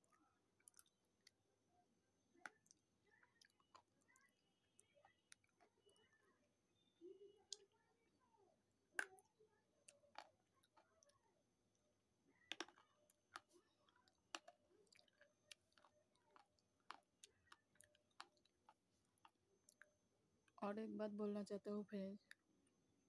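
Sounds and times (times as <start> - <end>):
chewing crunches and clicks: 0.0 - 1.4, 2.4 - 6.0, 12.4 - 19.9.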